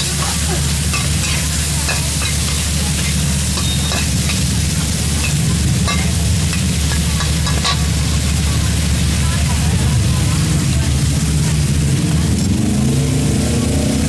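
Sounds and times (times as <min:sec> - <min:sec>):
metal spatula scraping wok: 0:00.0 - 0:09.0
food sizzling in oil: 0:00.0 - 0:14.0.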